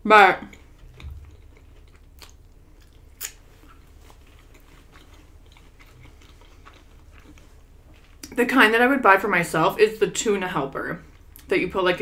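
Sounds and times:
person chewing food: 0:00.4 - 0:08.4, 0:11.0 - 0:11.5.

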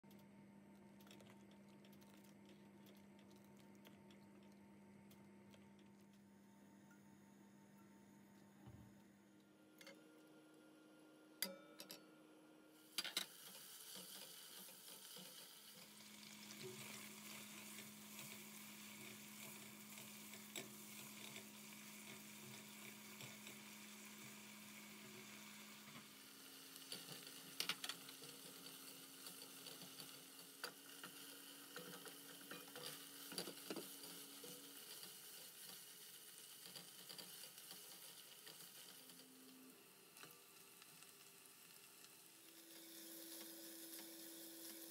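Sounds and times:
meat frying in hot oil: 0:12.8 - 0:44.9.

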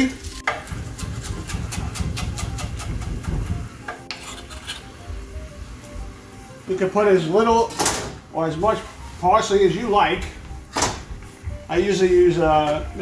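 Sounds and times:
knife chopping on wooden board: 0:01.0 - 0:03.5.

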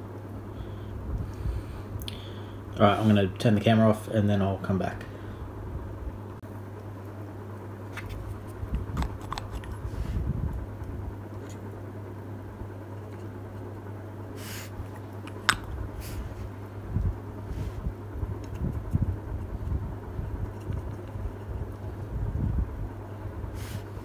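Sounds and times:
steady low hum: 0:00.0 - 0:24.0
paint pot and brush clicking: 0:08.0 - 0:09.8, 0:15.2 - 0:15.8.

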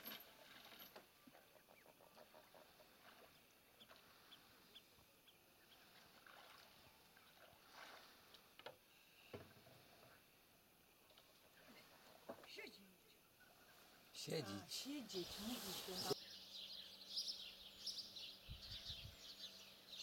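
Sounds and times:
pole splashing in water: 0:07.4 - 0:08.5.

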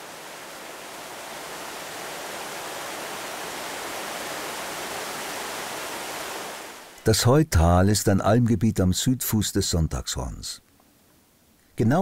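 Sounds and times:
stream rushing over boulders: 0:00.0 - 0:07.0.

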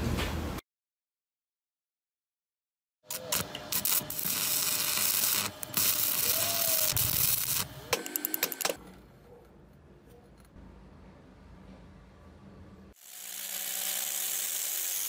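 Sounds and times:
arc welding crackling and hissing: 0:03.1 - 0:08.2, 0:13.0 - 0:15.0.

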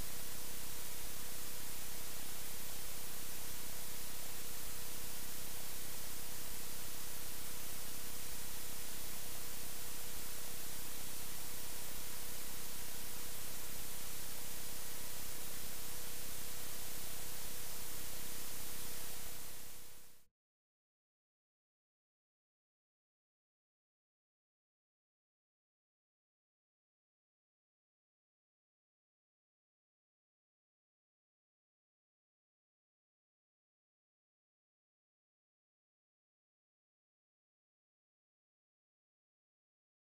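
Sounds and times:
faint electrical hum: 0:00.0 - 0:20.3
recording hiss: 0:00.0 - 0:20.3.

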